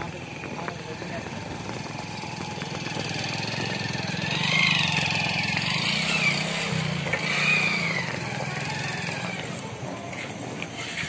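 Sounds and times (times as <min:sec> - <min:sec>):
motorcycle engine revving: 0:00.0 - 0:11.0.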